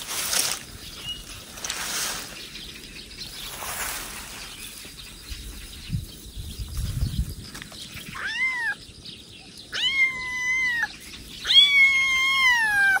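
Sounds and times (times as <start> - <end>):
kitten meowing: 8.1 - 8.8, 9.7 - 13.0.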